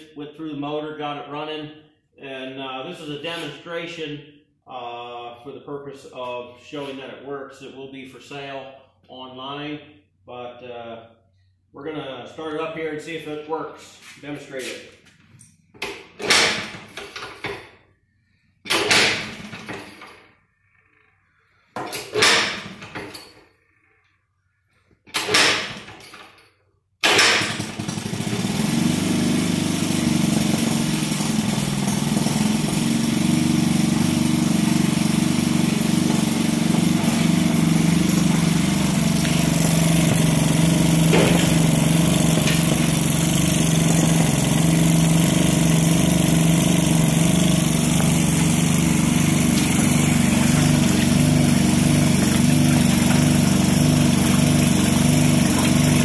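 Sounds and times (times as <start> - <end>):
washer running: 21.8 - 23.2, 27.1 - 56.0
two-stroke engine running: 27.0 - 56.0.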